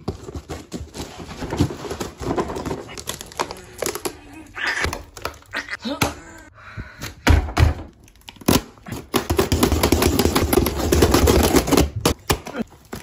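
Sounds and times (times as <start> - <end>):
plastic wrap crackling and tearing: 0.1 - 5.8.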